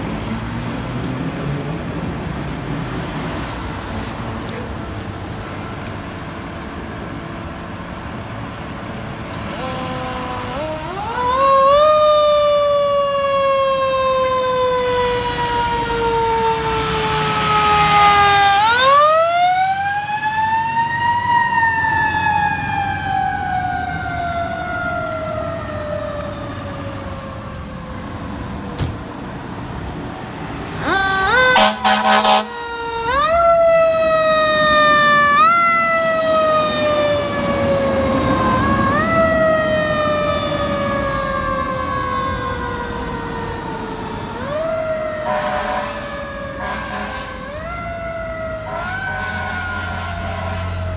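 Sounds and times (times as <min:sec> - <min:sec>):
fire truck sirens wailing: 0:00.0 - 0:50.9
heavy truck engines rumbling: 0:00.0 - 0:50.9
air horn blasts: 0:09.5 - 0:11.0, 0:30.9 - 0:32.6, 0:45.2 - 0:47.5, 0:48.7 - 0:50.9.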